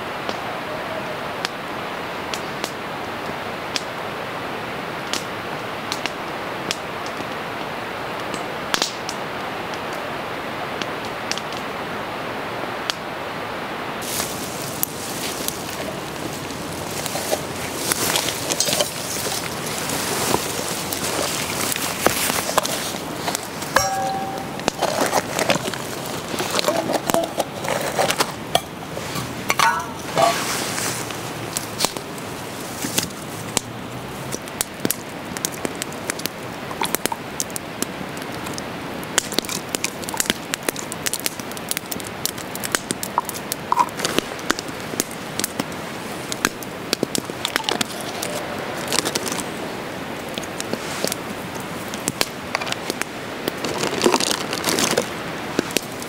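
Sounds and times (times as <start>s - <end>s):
campfire crackling: 0.0s - 56.0s
metal cup handling: 23.8s - 25.8s, 26.5s - 30.5s.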